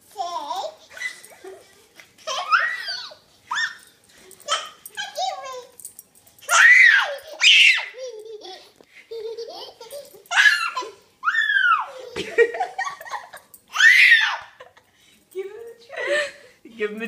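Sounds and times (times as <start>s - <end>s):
toddler girl giggling and squealing: 0.7s - 1.6s, 2.2s - 3.9s, 6.5s - 8.8s, 9.4s - 12.6s, 13.7s - 14.7s.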